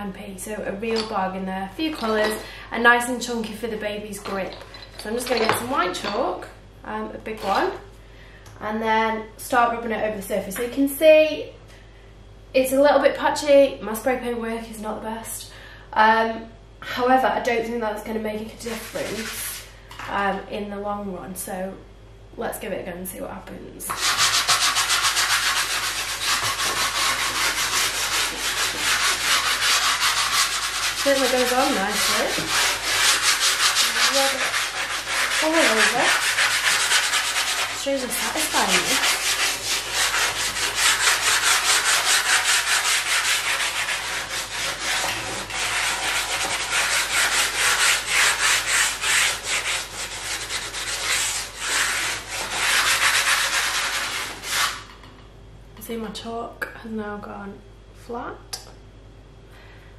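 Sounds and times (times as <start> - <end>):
chalk rubbing on chalkboard: 18.7 - 19.6, 23.9 - 54.9.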